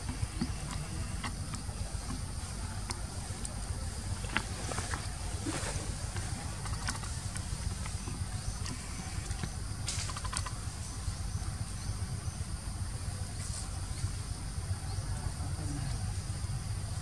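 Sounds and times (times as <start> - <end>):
high insect drone: 0.0 - 17.0
small clicks and crackles: 0.1 - 10.6.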